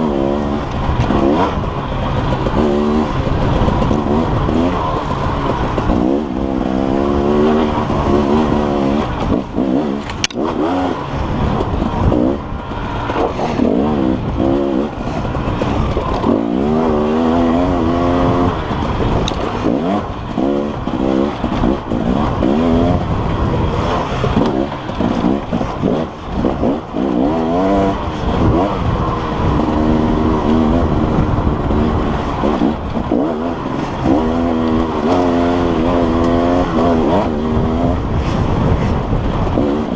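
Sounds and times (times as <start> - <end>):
dirt bike engine revving: 0.0 - 39.9
sharp click: 10.0 - 10.6.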